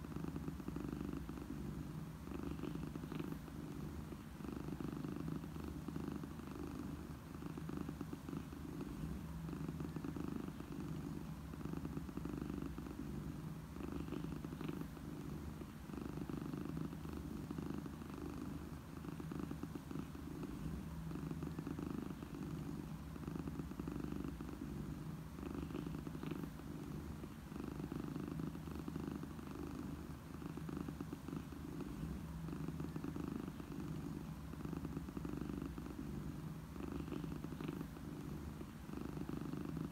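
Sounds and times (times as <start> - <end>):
cat purring: 0.0 - 39.9.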